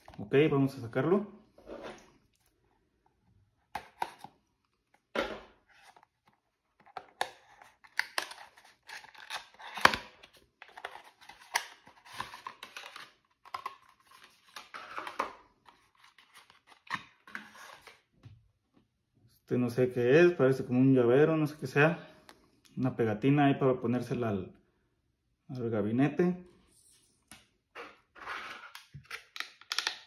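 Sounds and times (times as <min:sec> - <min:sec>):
cardboard packaging rustling: 0:03.8 - 0:18.0.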